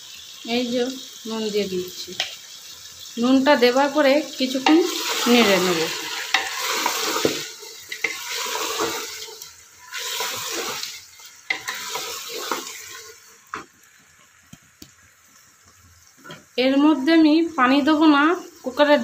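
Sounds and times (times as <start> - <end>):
meat sizzling in a pot: 0.0 - 19.0
wooden spatula scraping a pot: 4.9 - 13.2.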